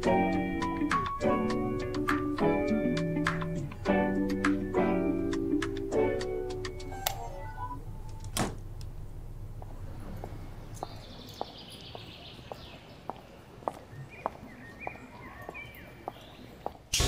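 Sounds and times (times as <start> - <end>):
faint outdoor background noise: 0.0 - 17.0
footsteps on concrete: 9.6 - 16.9.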